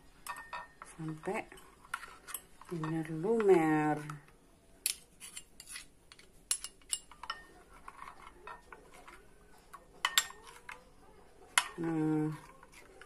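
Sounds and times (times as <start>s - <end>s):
spoon stirring batter: 0.0s - 13.0s
spoon clinking on bowl: 6.5s - 7.5s, 10.0s - 10.7s.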